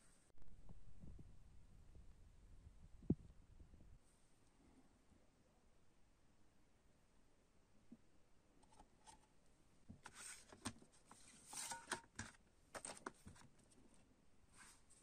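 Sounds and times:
paper booklet rustling: 10.0s - 13.8s.

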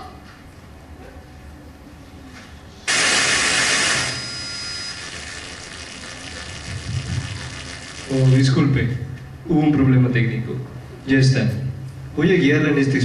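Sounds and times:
low hum: 2.9s - 8.6s
sound system hiss: 2.9s - 9.0s.

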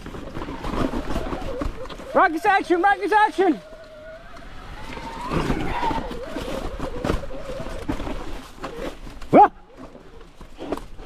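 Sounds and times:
mountain bike clattering over rocks: 0.0s - 11.0s
rider yelling: 2.0s - 6.7s, 9.3s - 9.7s.

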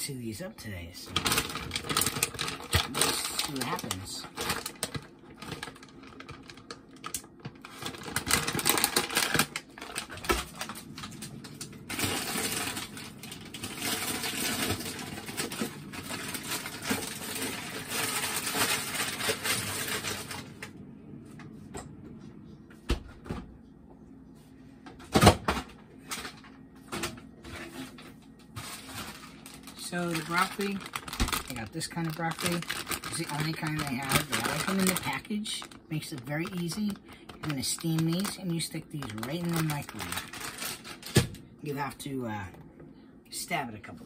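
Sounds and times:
plastic package crinkling: 1.1s - 20.6s, 28.5s - 41.4s.

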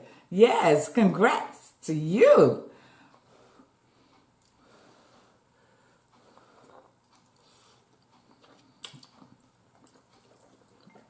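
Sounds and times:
person chewing: 4.1s - 5.2s, 5.8s - 11.0s.

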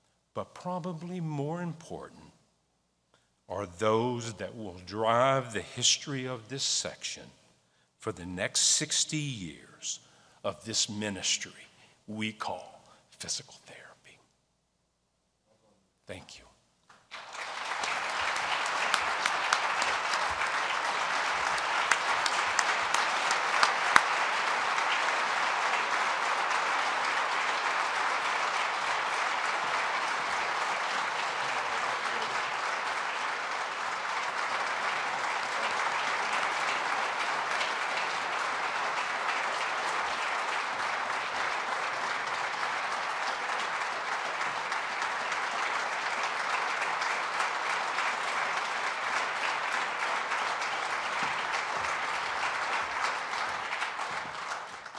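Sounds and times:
audience applauding: 16.9s - 54.9s
loud single claps: 16.9s - 54.9s.

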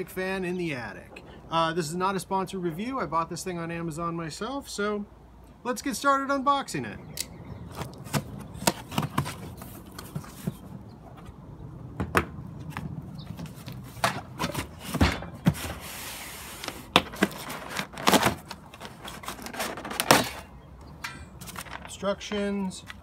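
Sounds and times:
cardboard rustling: 7.7s - 10.8s, 12.6s - 20.5s, 21.4s - 22.0s
cardboard knocks and scrapes: 7.7s - 11.4s, 12.0s - 20.4s
knife slitting cardboard box: 13.9s - 20.4s.

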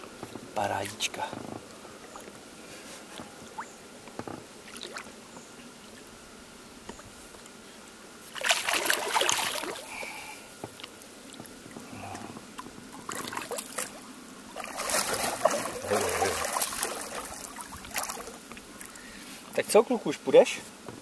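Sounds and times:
water dripping and splashing: 4.6s - 5.1s, 8.3s - 9.8s, 12.5s - 14.0s, 14.6s - 19.0s
large fish splashing at surface: 8.4s - 9.9s, 14.6s - 18.4s.

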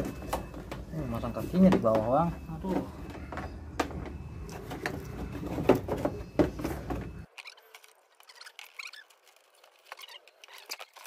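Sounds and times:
faint high chirps and squeaks: 7.2s - 11.0s.

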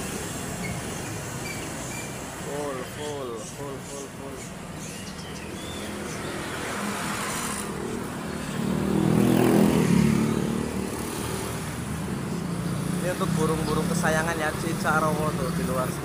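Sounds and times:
motor vehicle passing close: 5.6s - 16.0s.

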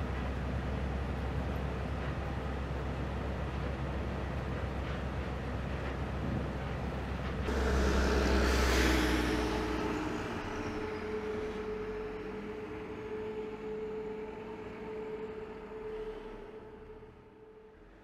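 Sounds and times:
bus engine rumble: 0.0s - 18.0s
surge of hiss: 7.5s - 12.0s.

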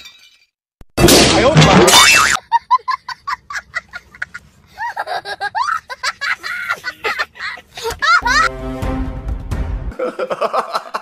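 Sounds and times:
high-pitched giggling laughter: 2.1s - 8.5s.

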